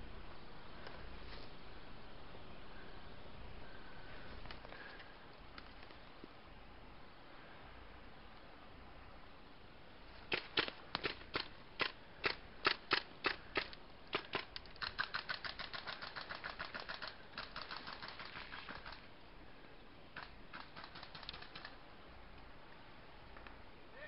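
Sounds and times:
airsoft guns firing: 0:10.3 - 0:19.1, 0:20.2 - 0:21.8.

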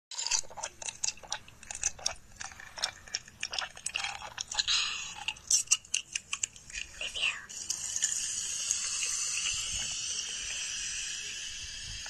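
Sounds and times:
person chewing crunchy food: 0:00.1 - 0:06.9.

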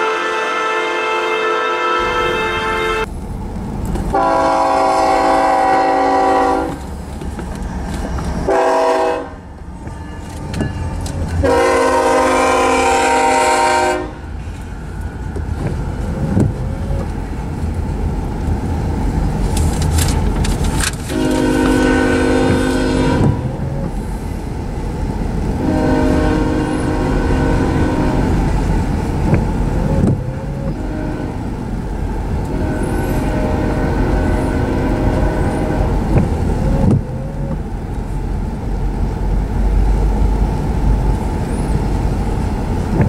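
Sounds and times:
locomotive air horn blasts: 0:00.0 - 0:03.1, 0:04.1 - 0:06.8, 0:08.5 - 0:14.3, 0:21.0 - 0:23.8, 0:25.6 - 0:28.6, 0:30.4 - 0:31.5, 0:32.4 - 0:36.8
train rumbling past: 0:00.0 - 0:43.0.

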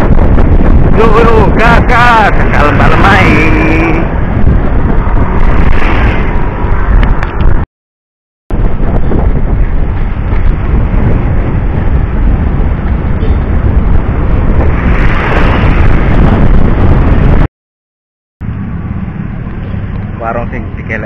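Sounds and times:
wind buffeting microphone: 0:00.0 - 0:07.7, 0:08.5 - 0:17.5.

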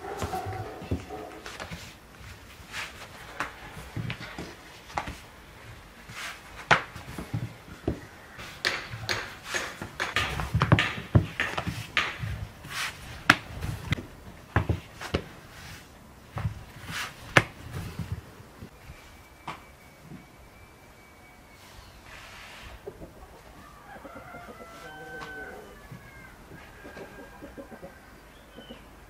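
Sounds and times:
dull thumps on dough: 0:06.6 - 0:15.4, 0:16.3 - 0:18.2
rolling pin knocking on board: 0:06.7 - 0:12.4.

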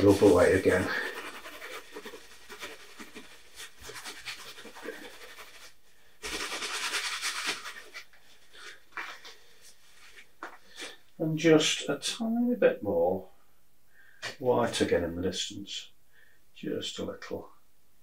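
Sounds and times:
paper tissue rustling on canvas: 0:00.0 - 0:11.0.

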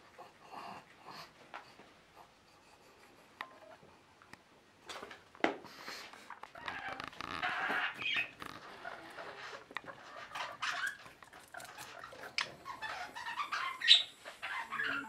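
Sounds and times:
guinea pig chewing beet: 0:05.9 - 0:13.8.

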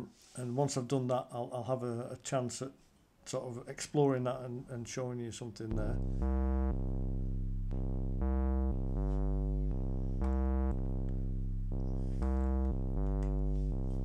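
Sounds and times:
deep synth bass line: 0:05.7 - 0:14.0
held synth notes: 0:05.7 - 0:14.0.

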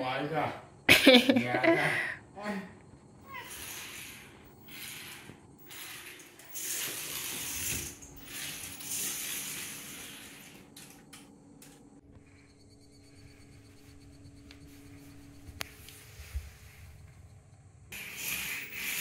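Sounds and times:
toy car electric motor whirring: 0:03.2 - 0:11.0, 0:17.9 - 0:19.0.

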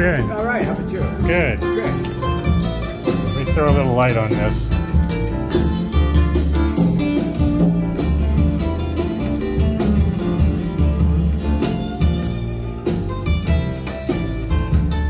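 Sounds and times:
deep bass notes: 0:00.0 - 0:15.0
music with plucked strings: 0:00.0 - 0:15.0.

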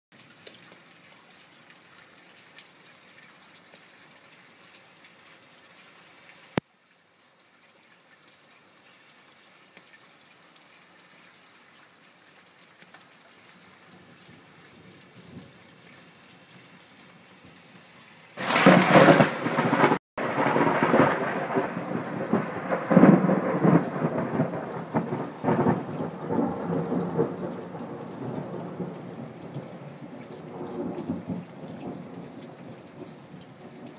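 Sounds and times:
rain hiss: 0:00.2 - 0:33.9
thunderclap rumbling: 0:18.4 - 0:29.7.

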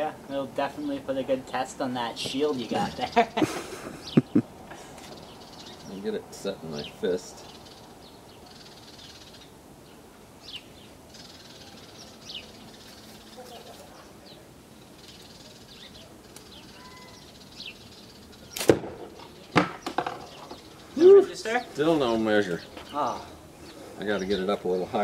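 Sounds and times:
faint bird chirps: 0:05.0 - 0:21.8
sharp crack: 0:18.5 - 0:20.4.

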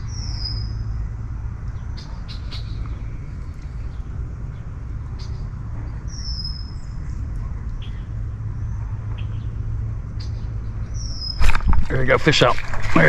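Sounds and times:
bird chirps: 0:00.0 - 0:00.9, 0:03.6 - 0:09.6, 0:10.2 - 0:11.5
steady low rumble: 0:00.0 - 0:13.0
bird whistling: 0:06.1 - 0:06.9.

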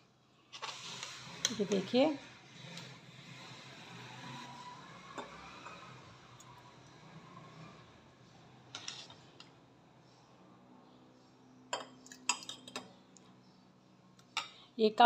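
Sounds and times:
spoon clinking against glass jar: 0:11.8 - 0:13.0.

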